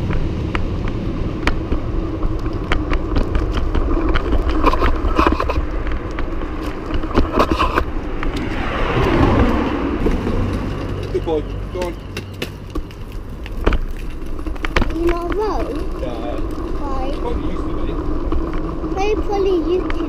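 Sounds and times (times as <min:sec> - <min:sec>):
rush of noise: 0:00.0 - 0:11.6
bike rolling over paving stones: 0:00.0 - 0:20.0.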